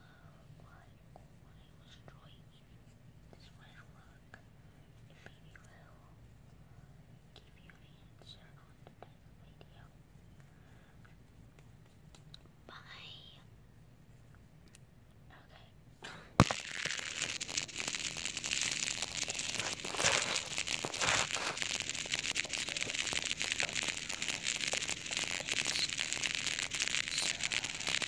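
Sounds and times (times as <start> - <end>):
crinkling rustle of material: 16.5 - 28.0.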